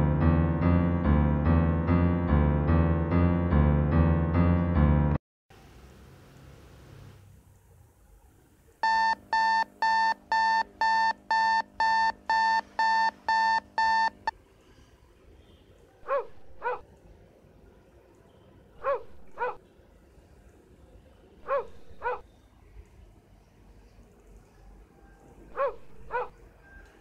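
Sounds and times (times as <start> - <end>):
alarm clock beeping: 8.8 - 14.3.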